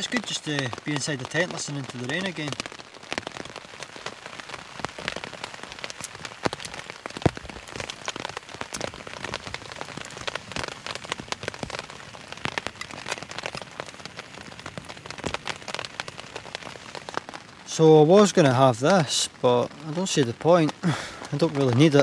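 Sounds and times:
rain pattering on tent fabric: 0.0s - 22.0s.

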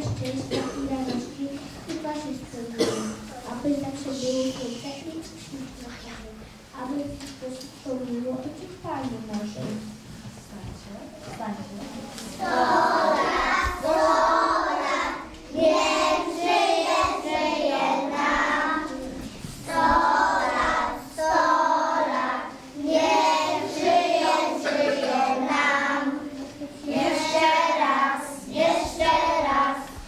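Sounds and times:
children singing together: 12.2s - 30.0s.

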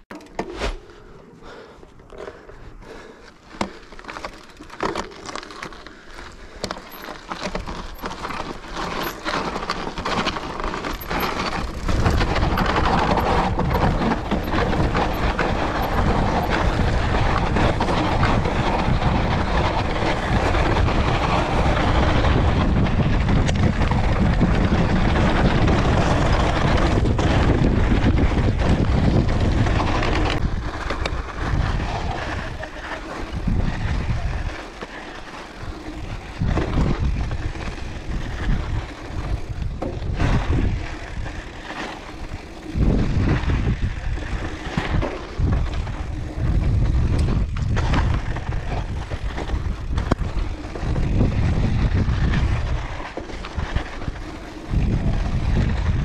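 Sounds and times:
bike rattling over stones: 0.0s - 56.0s
wind rushing on microphone: 10.9s - 34.6s, 35.6s - 56.0s.

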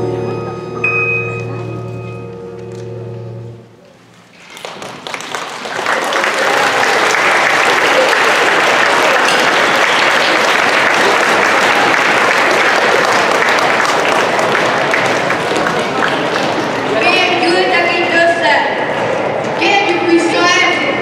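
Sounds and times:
children applauding: 4.4s - 17.4s.

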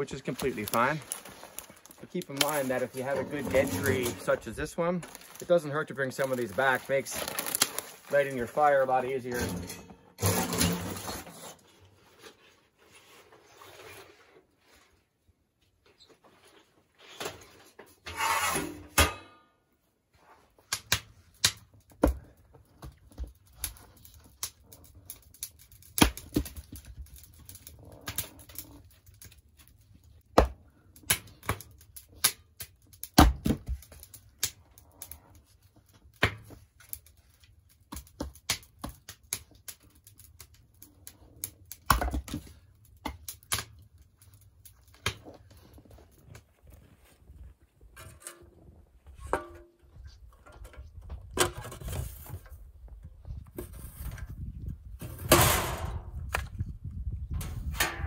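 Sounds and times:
wood fire crackling and popping: 0.0s - 11.5s, 20.5s - 47.8s.

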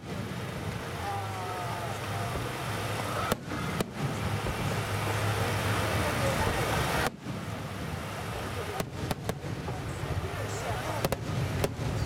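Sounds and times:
fireworks rumble: 0.0s - 12.0s
fireworks bang: 3.1s - 8.0s, 8.6s - 12.0s.

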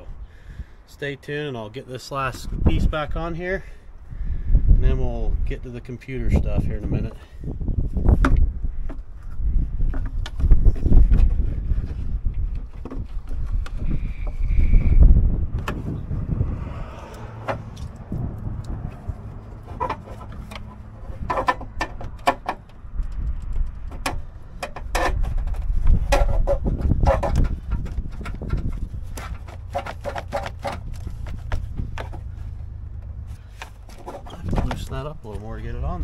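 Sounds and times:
low rumble: 13.3s - 22.0s, 30.6s - 36.0s.

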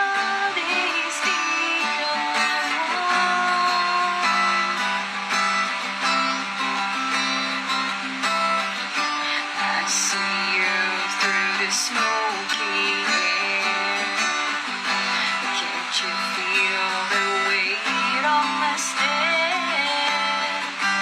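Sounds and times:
person singing: 0.0s - 5.1s, 8.8s - 21.0s
acoustic guitar strumming chords: 0.0s - 21.0s.

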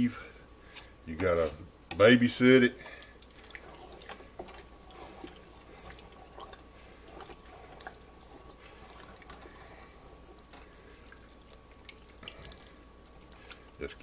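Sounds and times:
spoon stirring thick stew in pot: 2.8s - 13.8s.

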